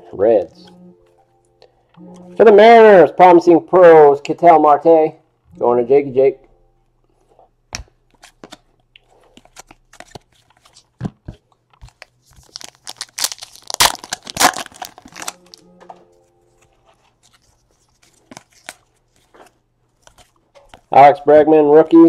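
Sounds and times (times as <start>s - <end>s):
cards clicking and snapping: 9.3s - 15.4s
foil wrapper tearing and crinkling: 11.8s - 15.6s.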